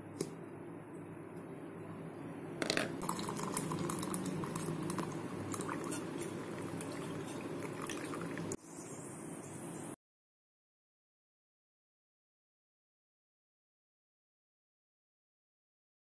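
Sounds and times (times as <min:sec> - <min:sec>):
liquid pouring and splashing: 0:03.0 - 0:08.6.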